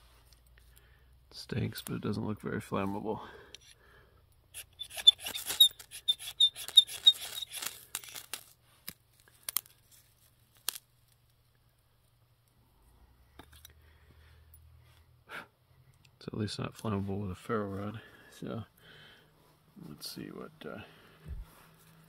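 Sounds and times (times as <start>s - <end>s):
ferro rod rasping strokes: 4.6s - 8.5s.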